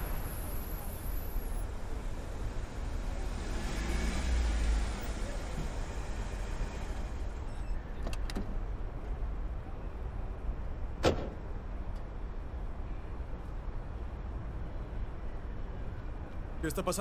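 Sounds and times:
car and traffic rumble: 0:00.0 - 0:17.0.

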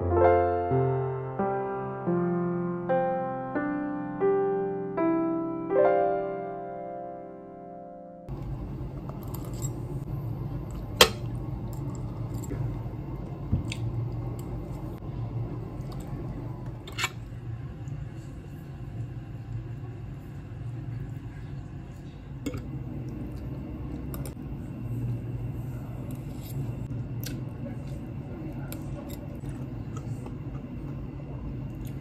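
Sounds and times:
steady low hum: 0:08.3 - 0:32.0.

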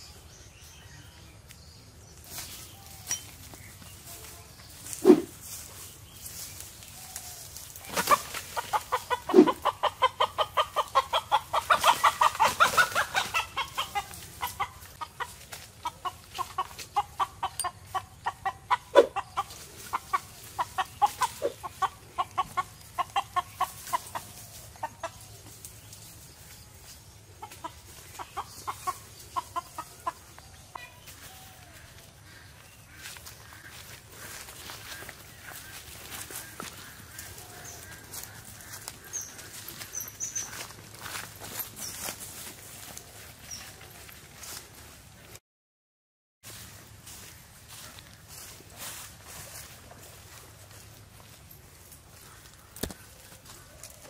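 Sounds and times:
chicken clucking: 0:07.8 - 0:41.8.

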